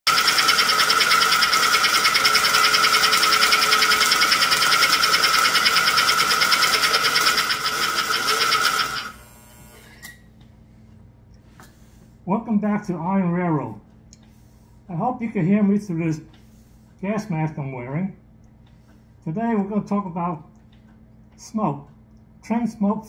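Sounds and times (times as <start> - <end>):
pulsing electric buzzing: 0.1 - 10.2.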